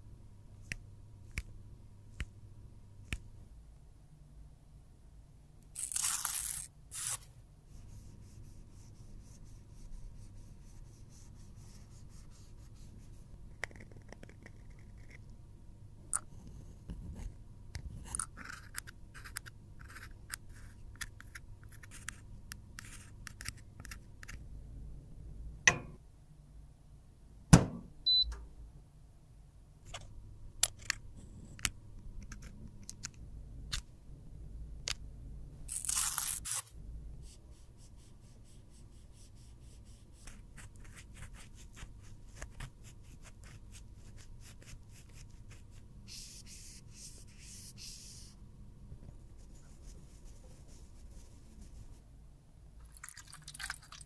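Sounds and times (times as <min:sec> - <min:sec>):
sharp knocks: 0:27.5 - 0:27.9
short high beep: 0:28.1 - 0:28.3.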